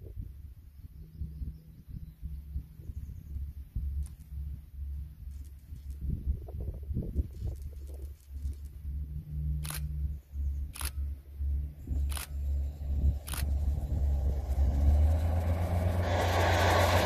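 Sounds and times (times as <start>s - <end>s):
diesel train low drone: 0.0s - 17.0s
sharp clicks: 9.6s - 10.1s, 10.7s - 11.1s, 12.0s - 12.4s, 13.2s - 13.8s.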